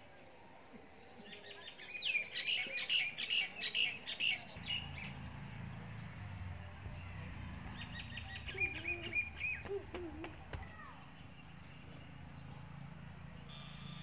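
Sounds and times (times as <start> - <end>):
songbird chirping: 0.0 - 14.0.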